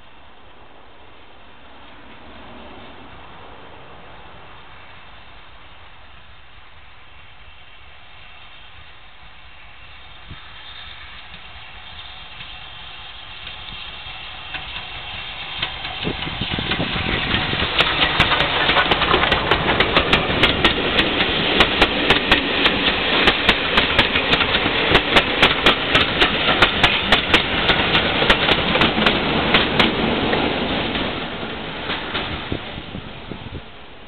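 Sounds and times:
steam train passing: 0.0s - 34.0s
wheels clicking over rail joints: 11.0s - 33.0s.

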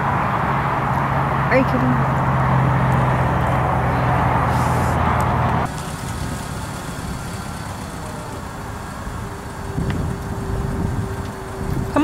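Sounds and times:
car engine rumbling at low speed: 0.0s - 12.0s
loud rushing noise: 0.0s - 12.0s
faint steady whine: 3.8s - 12.0s.

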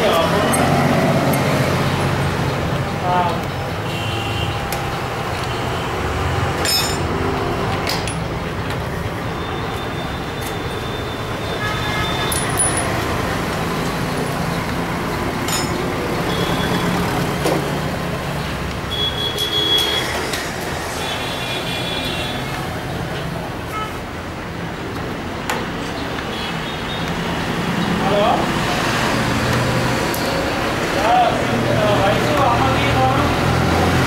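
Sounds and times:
road traffic rumble: 0.0s - 34.0s
hand tools clicking on metal: 15.4s - 15.9s.

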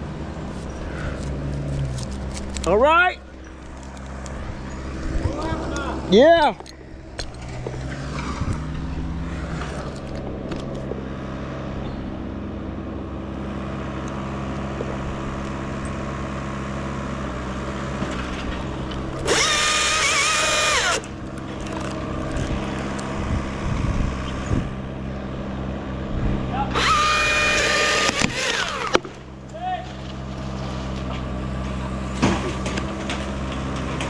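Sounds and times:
low engine hum: 0.0s - 34.0s
chainsaw revving whine: 18.9s - 24.7s, 26.7s - 29.4s.

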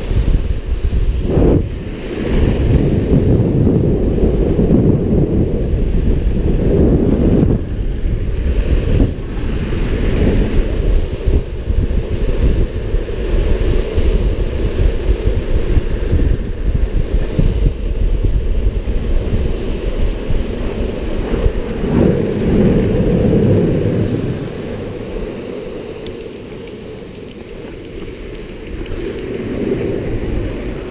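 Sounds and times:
longboard wheels rolling on asphalt: 0.0s - 30.9s
wind rushing over microphone: 0.0s - 30.9s.

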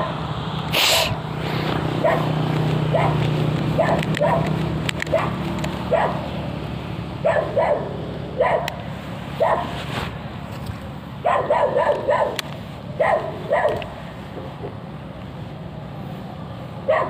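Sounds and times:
dog barking: 2.0s - 4.5s, 5.1s - 6.3s, 7.2s - 8.8s, 9.4s - 9.8s, 11.2s - 12.4s, 13.0s - 14.0s.

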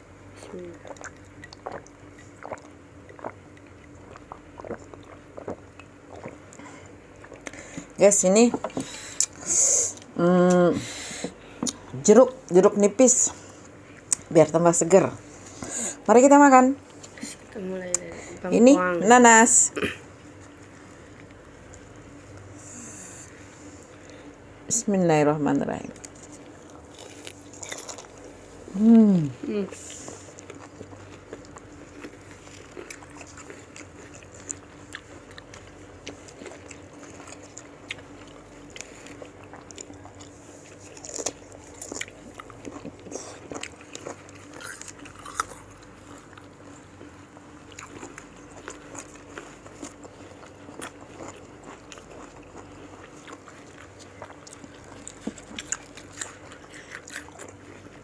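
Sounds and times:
faint steady hum: 0.0s - 58.0s
crunchy bites and chewing: 26.0s - 28.3s, 30.2s - 58.0s.

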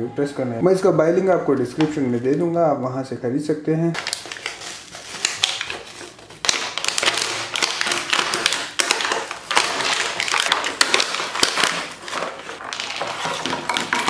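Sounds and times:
plastic packaging crinkling: 3.9s - 14.0s.

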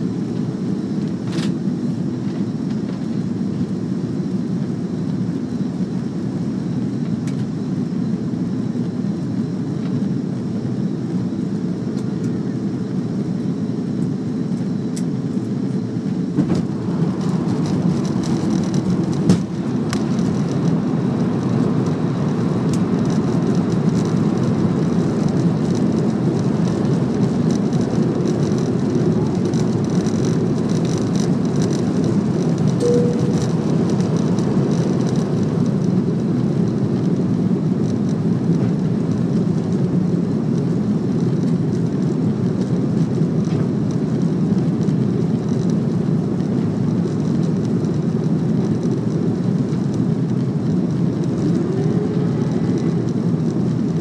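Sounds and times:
jet cabin engine and airflow noise: 0.0s - 54.0s
thin high whine: 32.8s - 34.9s.

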